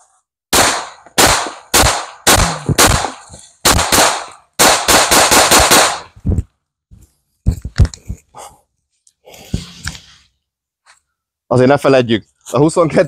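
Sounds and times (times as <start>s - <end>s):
pistol shots: 0.5s - 6.2s.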